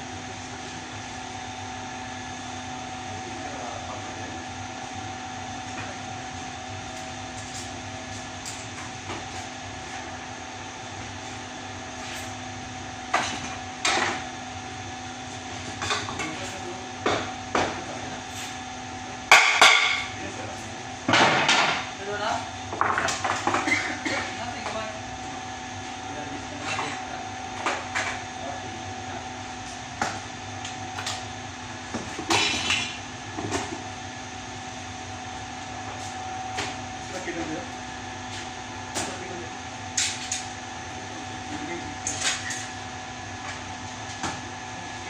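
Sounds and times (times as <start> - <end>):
steady machine hum: 0.0 - 45.0.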